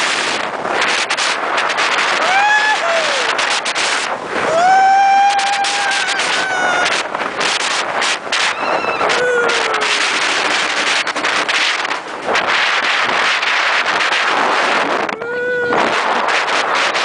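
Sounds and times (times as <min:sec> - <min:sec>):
wind buffeting microphone: 0:00.0 - 0:17.0
short pitched wail: 0:02.2 - 0:03.4, 0:04.4 - 0:07.0, 0:15.1 - 0:16.1
rapid thumps: 0:05.3 - 0:15.2.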